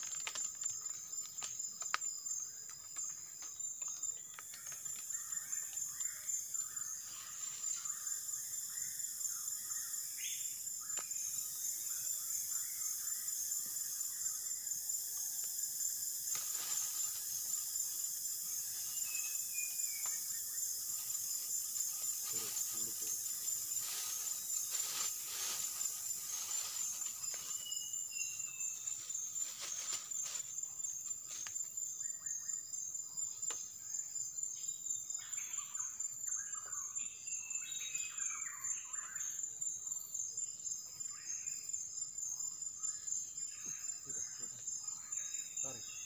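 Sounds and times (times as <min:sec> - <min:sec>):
insects pulsing drone: 0:00.0 - 0:46.0.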